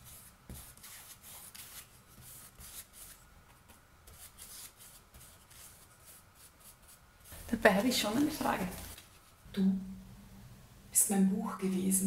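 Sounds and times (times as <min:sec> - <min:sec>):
paintbrush strokes scratching: 0:00.0 - 0:09.4.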